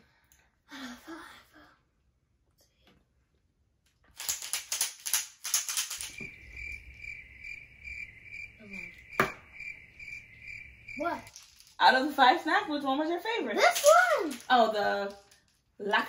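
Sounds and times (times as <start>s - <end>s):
crickets chirping: 5.6s - 12.8s.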